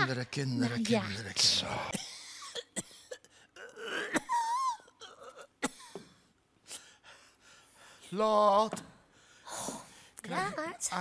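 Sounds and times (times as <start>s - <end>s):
man moaning and whimpering: 3.6s - 4.2s.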